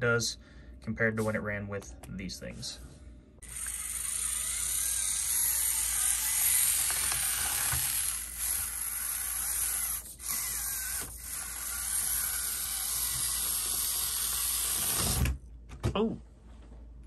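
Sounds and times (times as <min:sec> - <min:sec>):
electric motor and gearbox whining: 0:03.4 - 0:15.4.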